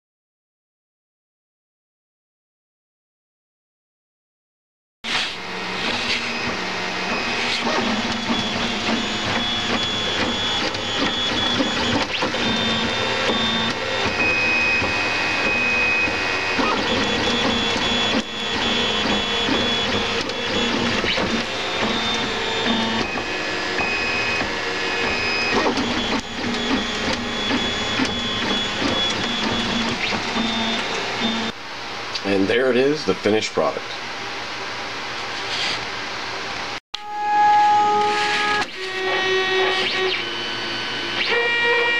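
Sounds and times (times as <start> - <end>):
printer stepper motors whining: 5.1 - 31.6, 37.0 - 41.9.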